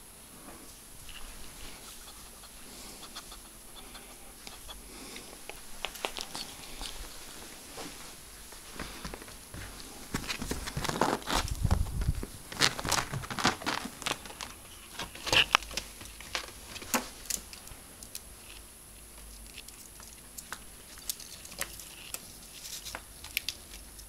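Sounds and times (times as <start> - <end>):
ferrets scrabbling on bedding: 0.5 - 24.0
fabric rustling: 6.5 - 15.2.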